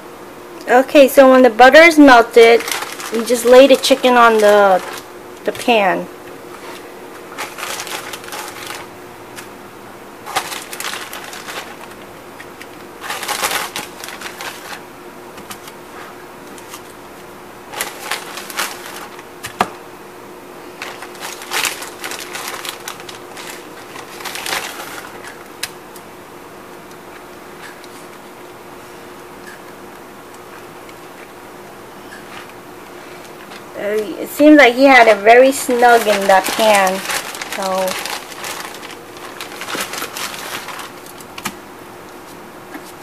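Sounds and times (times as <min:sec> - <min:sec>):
faint steady hum: 0:00.0 - 0:43.0
plastic bag and foil crinkling: 0:01.0 - 0:09.5, 0:10.2 - 0:14.8, 0:17.7 - 0:19.3, 0:20.6 - 0:25.8, 0:33.4 - 0:41.5.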